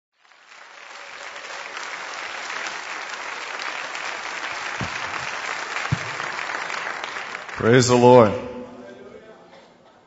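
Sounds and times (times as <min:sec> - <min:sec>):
crowd applauding: 0:00.2 - 0:08.4.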